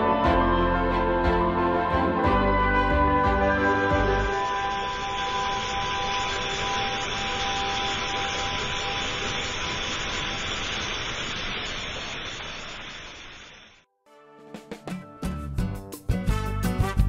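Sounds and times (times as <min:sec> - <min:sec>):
music: 0:00.0 - 0:06.4, 0:13.9 - 0:17.0
waterfall splashing: 0:04.5 - 0:13.8.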